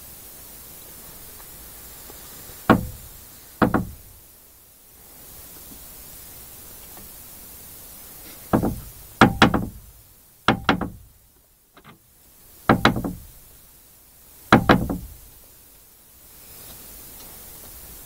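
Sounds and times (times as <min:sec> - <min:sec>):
metal window latch rattling: 0:08.5 - 0:09.8, 0:10.5 - 0:11.1, 0:12.7 - 0:13.3, 0:14.6 - 0:15.2.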